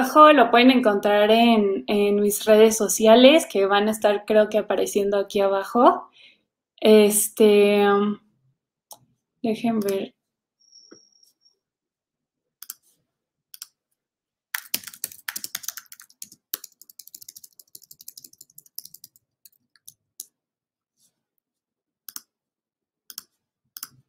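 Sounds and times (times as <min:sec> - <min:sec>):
keyboard keys clicking: 0:14.6 - 0:20.0.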